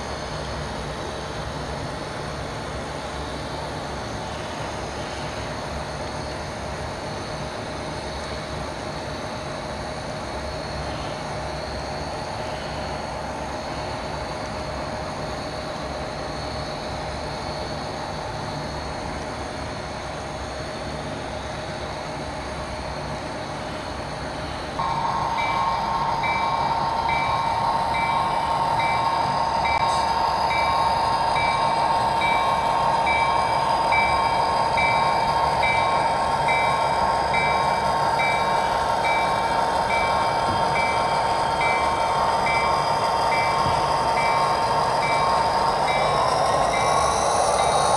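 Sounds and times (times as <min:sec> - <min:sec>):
model train running: 0:00.0 - 0:47.9
pulsing high bell tone: 0:24.8 - 0:47.9.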